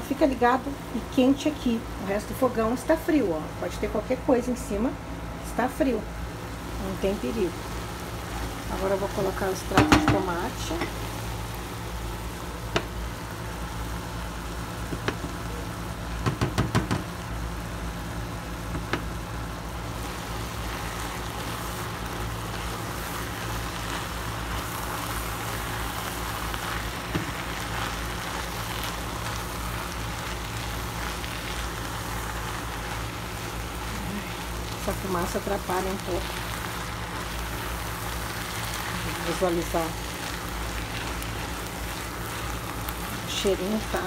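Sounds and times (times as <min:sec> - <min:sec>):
ground beef sizzling in a pot: 0:05.5 - 0:44.0
spatula knocking on pot: 0:09.7 - 0:10.3.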